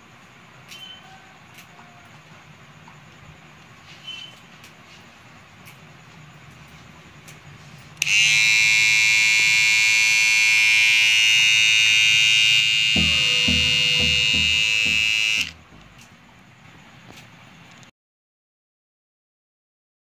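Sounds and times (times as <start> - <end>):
beard trimmer buzzing: 8.0 - 15.6.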